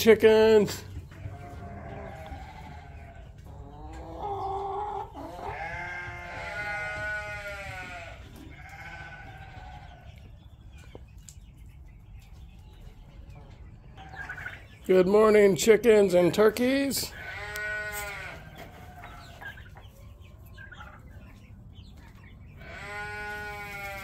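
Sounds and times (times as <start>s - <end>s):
sheep bleating: 1.3s - 3.2s, 5.4s - 10.1s, 17.1s - 18.5s, 22.6s - 24.0s.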